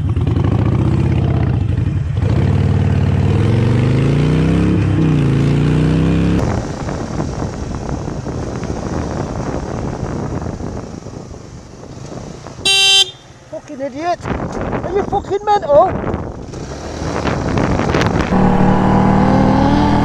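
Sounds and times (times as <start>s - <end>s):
motorcycle engine accelerating: 0.0s - 13.2s, 16.2s - 20.0s
wind rush: 6.4s - 12.7s, 14.1s - 20.0s
another motorcycle engine: 16.0s - 20.0s.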